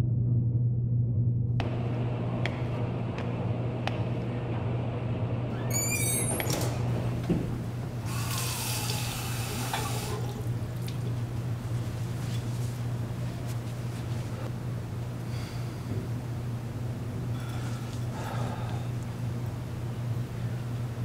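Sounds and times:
steady low hum: 0:00.0 - 0:21.0
squeaky creak: 0:05.5 - 0:06.7
faucet water running into sink: 0:08.0 - 0:11.0.

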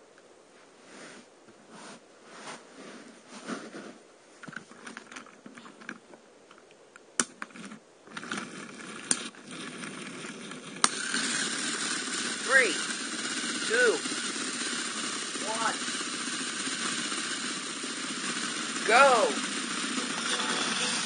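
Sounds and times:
loud steady noise: 0:08.3 - 0:21.0.

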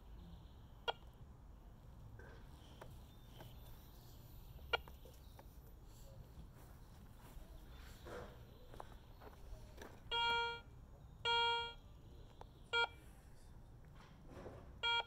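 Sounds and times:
metal detector beeping: 0:10.1 - 0:10.7, 0:11.3 - 0:11.8.

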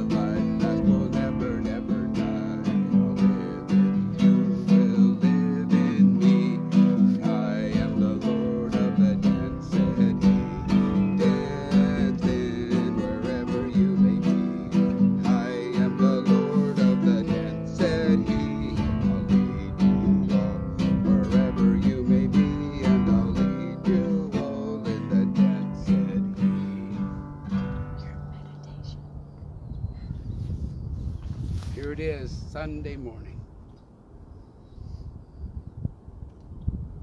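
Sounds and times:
classical guitar strumming chords: 0:00.0 - 0:28.5.

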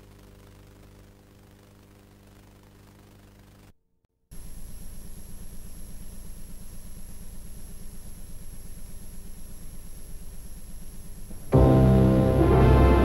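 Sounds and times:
pulsing electrical hum: 0:00.0 - 0:03.7, 0:04.4 - 0:13.0
faint high whine: 0:04.4 - 0:13.0.

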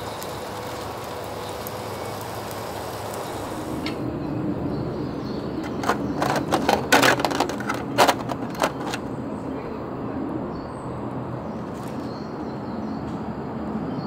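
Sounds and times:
meat sizzling on grill: 0:00.0 - 0:04.0
metal tongs scraping grill plate: 0:05.6 - 0:09.1.

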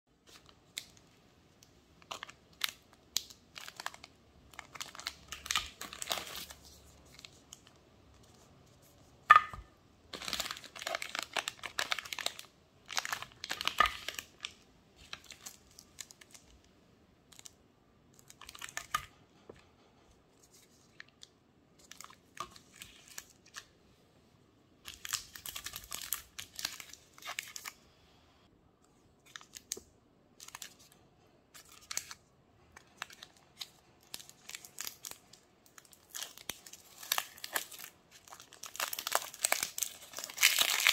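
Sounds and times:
plastic wrappers crinkling: 0:00.2 - 0:08.6, 0:09.3 - 0:16.6, 0:17.3 - 0:19.2, 0:24.9 - 0:27.8, 0:30.4 - 0:40.9.

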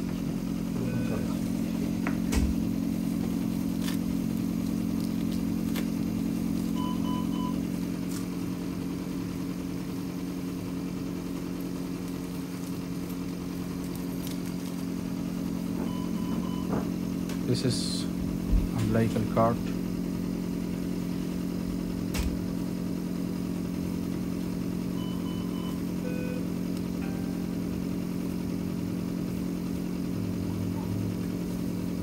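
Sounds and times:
machinery humming: 0:00.0 - 0:32.0
short electronic beeps: 0:06.8 - 0:07.6, 0:15.8 - 0:16.8, 0:25.0 - 0:26.5.

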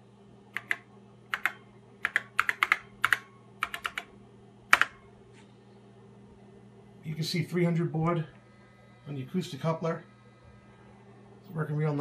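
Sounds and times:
keyboard keys clicking: 0:00.6 - 0:04.1, 0:04.7 - 0:05.0.

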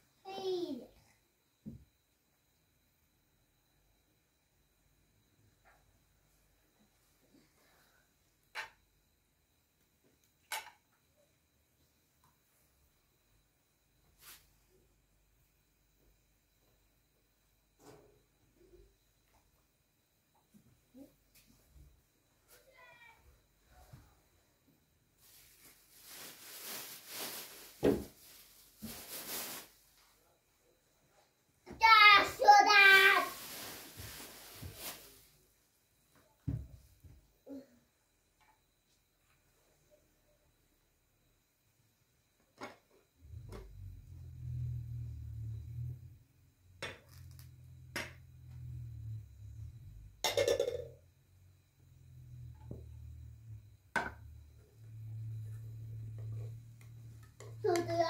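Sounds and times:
thump: 0:01.6 - 0:01.9, 0:27.8 - 0:28.1, 0:36.4 - 0:36.8
plastic bag rustling: 0:25.2 - 0:29.9, 0:32.4 - 0:35.3.

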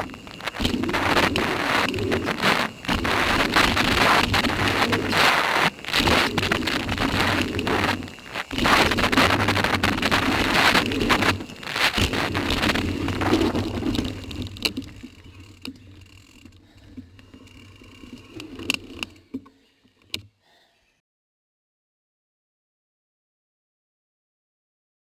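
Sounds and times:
wind rushing over microphone: 0:00.0 - 0:15.4
bike rattling over jumps: 0:00.0 - 0:19.4
bike tyres on packed dirt: 0:00.0 - 0:19.8.

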